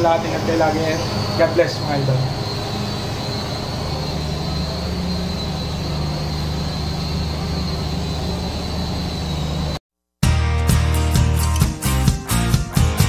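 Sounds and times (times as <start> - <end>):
mechanical hum with high whine: 0.0 - 9.8.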